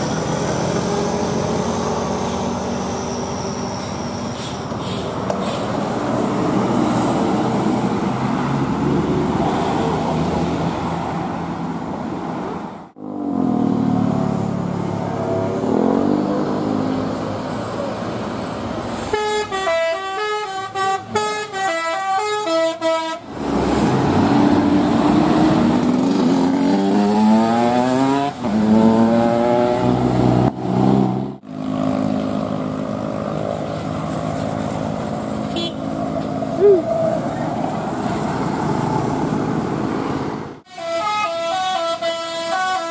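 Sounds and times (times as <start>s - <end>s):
diesel buses passing: 0.0s - 42.9s
multi-tone bus horn tune: 19.0s - 23.3s, 35.5s - 35.9s, 40.7s - 42.9s.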